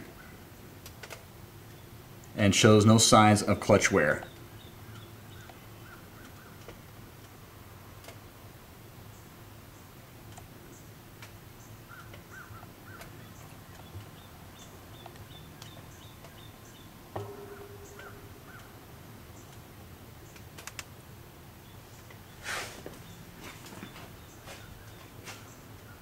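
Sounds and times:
faint high chirps: 17.2 - 18.8.

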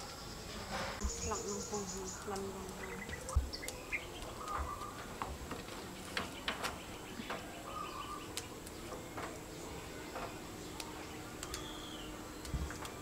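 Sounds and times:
faint bird calling: 1.0 - 5.2, 5.9 - 10.1, 10.7 - 12.6
chive stalks snapping and rustling: 2.0 - 13.0.

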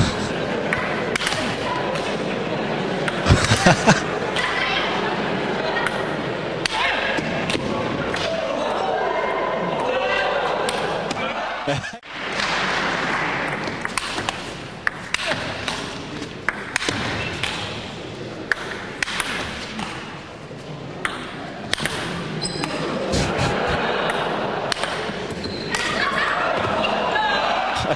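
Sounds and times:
murmuring crowd: 0.0 - 13.1, 19.7 - 27.9.

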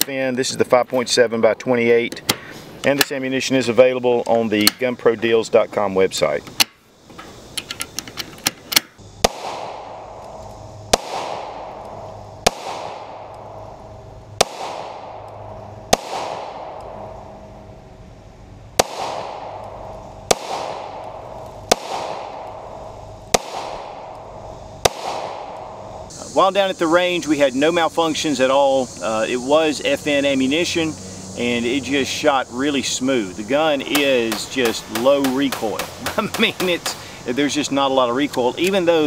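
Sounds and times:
small clicks: 6.5 - 9.0
pistol shots ringing out: 9.2 - 10.2, 10.9 - 13.7, 14.4 - 17.2, 18.8 - 25.8, 33.9 - 37.1.

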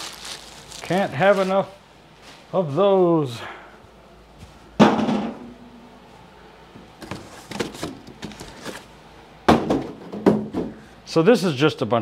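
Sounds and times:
cardboard rustling and scraping: 7.0 - 8.9.

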